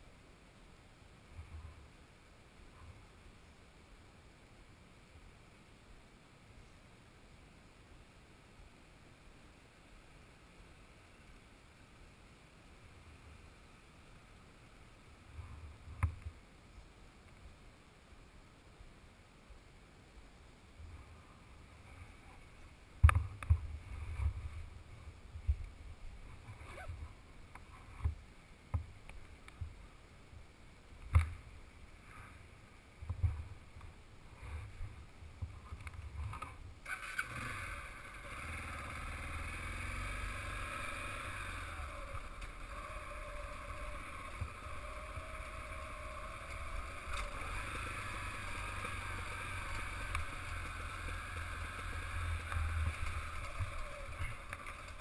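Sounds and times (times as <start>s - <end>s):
motorcycle ride rushing noise: 23.0s - 28.8s, 34.3s - 55.0s.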